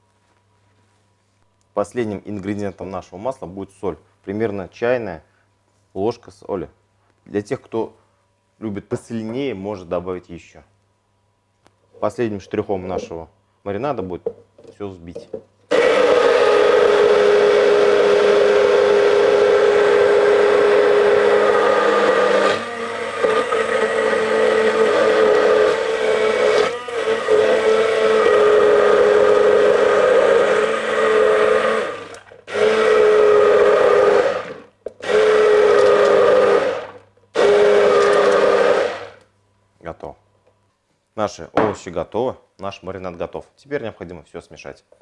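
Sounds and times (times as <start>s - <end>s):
immersion blender motor whine: 15.7s - 39.2s.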